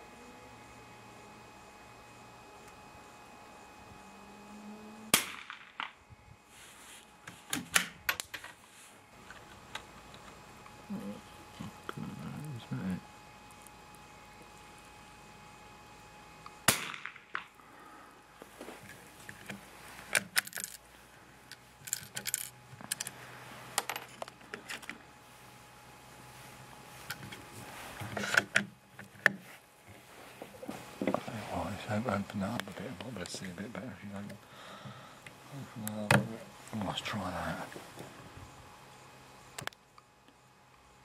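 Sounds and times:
rifle shot crack: 0:05.1 - 0:06.0, 0:16.7 - 0:17.5.

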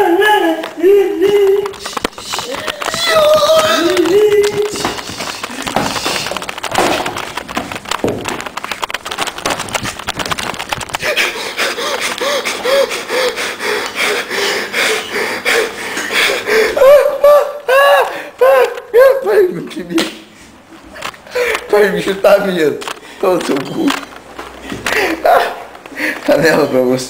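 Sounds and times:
microphone handling crackle: 0:01.0 - 0:11.2
high-pitched voice squeals: 0:01.2 - 0:04.9.

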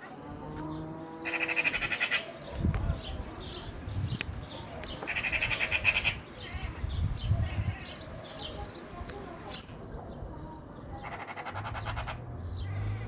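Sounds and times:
low drawn-out animal call: 0:00.1 - 0:02.3, 0:11.0 - 0:13.0
magpie chattering rattles: 0:11.0 - 0:12.2.

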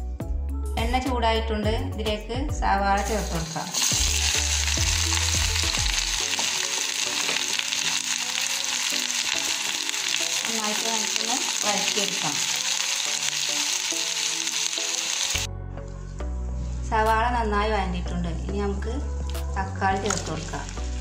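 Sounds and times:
onions sizzling in a pan: 0:03.2 - 0:15.5.

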